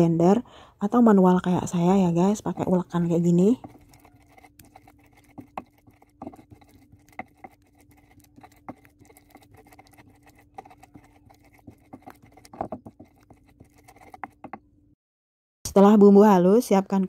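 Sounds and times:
stone pestle grinding on stone: 0:01.9 - 0:14.7.

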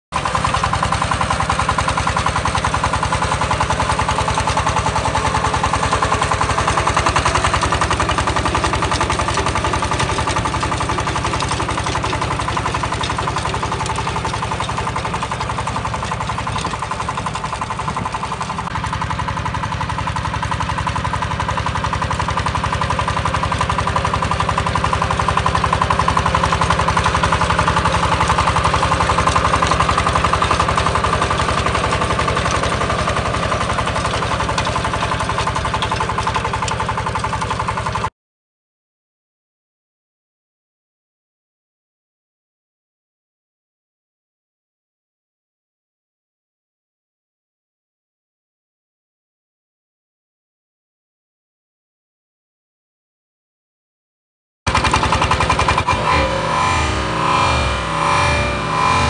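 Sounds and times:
diesel tiller engine chugging: 0:00.1 - 0:38.1, 0:54.7 - 0:59.0.

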